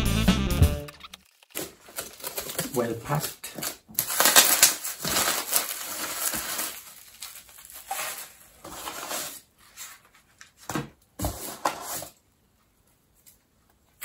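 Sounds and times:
plastic wrap crinkling: 1.0 - 10.3.

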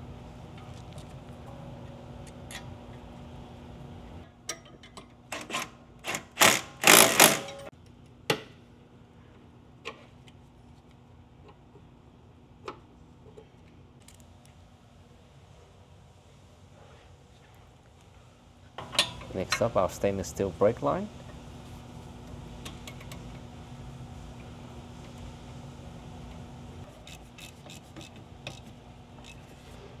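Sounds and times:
impact wrench rattling: 6.1 - 7.7.

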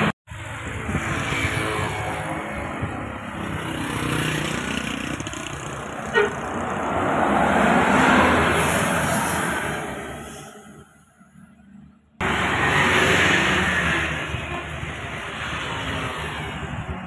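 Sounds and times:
bus engine passing: 0.0 - 17.0.

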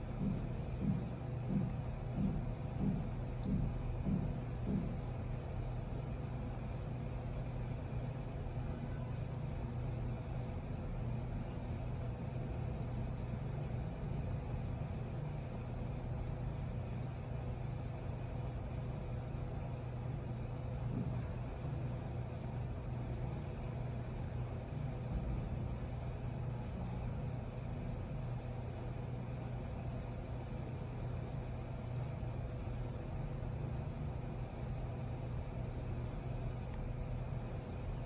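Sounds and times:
low machine hum: 0.0 - 38.0
faint high steady tone: 8.2 - 10.2.

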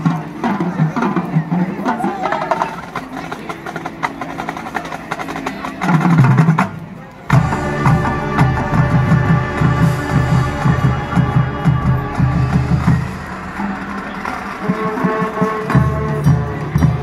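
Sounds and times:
marching band playing: 0.0 - 17.0
percussion clicks and low hits: 5.8 - 17.0.

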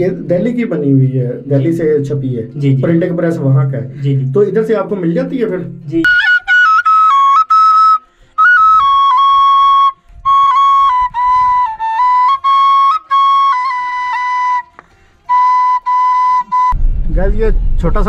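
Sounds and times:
wooden flute melody: 6.0 - 16.8.

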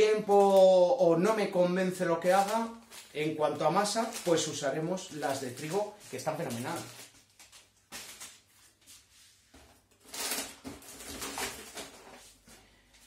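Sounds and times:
packaging rustling: 0.0 - 12.8.

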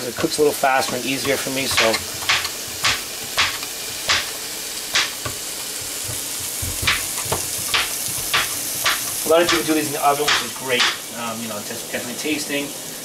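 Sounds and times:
chicken sizzling in a pan: 0.0 - 13.0
knife chopping on plastic board: 0.2 - 9.7, 10.3 - 11.0.

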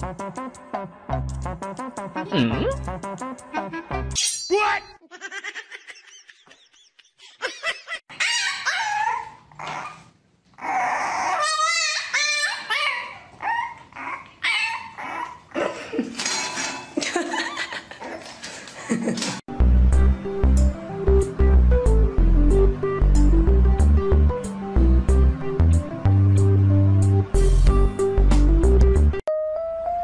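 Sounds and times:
dog whining and yipping: 8.1 - 15.6.

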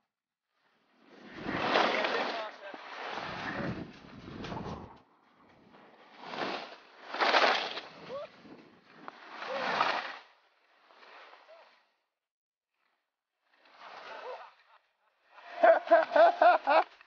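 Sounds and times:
skis scraping over snow: 0.9 - 11.7.

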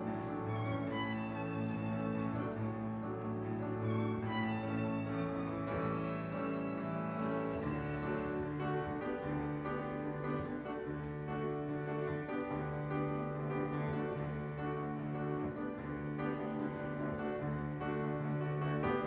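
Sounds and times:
cello sustaining low notes: 0.0 - 19.0
piano: 0.0 - 19.0
violin: 0.0 - 19.0.

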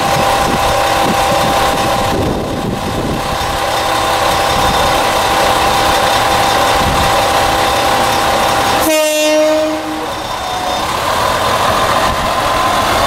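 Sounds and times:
diesel railcar idling: 0.0 - 13.0
train horn blast: 8.7 - 10.9.

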